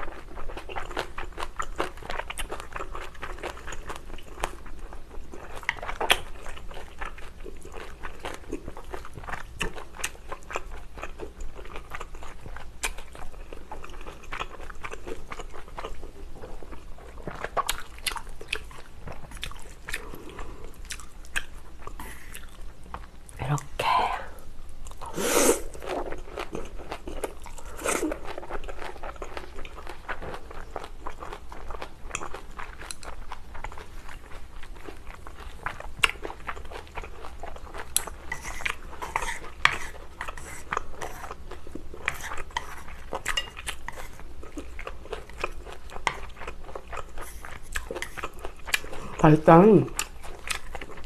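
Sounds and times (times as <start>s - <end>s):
wet chewing with crunches: 0.0s - 23.4s, 24.7s - 51.0s
person slurping noodles: 25.0s - 26.0s, 27.6s - 28.3s.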